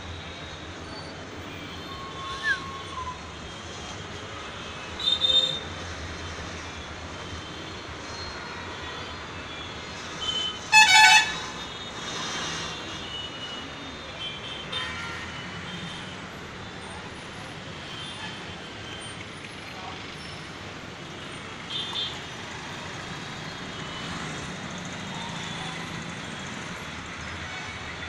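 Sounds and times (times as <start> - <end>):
street traffic noise: 0.0 - 28.0.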